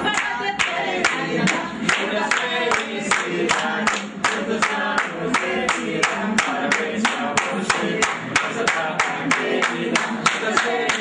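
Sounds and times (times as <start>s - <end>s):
group of people singing: 0.0s - 11.0s
hands clapping in time: 0.2s - 11.0s.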